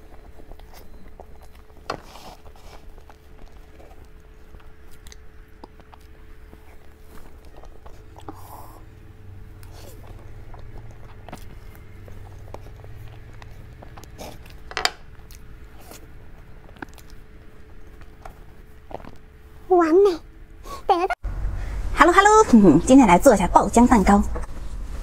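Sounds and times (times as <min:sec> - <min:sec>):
wet chewing and mouth sounds: 0:00.0 - 0:19.7
faint steady hum: 0:00.0 - 0:25.0.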